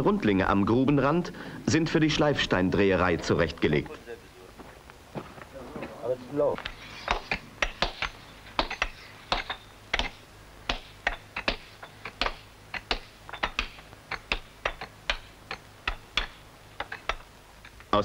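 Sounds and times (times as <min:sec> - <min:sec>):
hammers striking chisels on stone: 0:06.6 - 0:17.8.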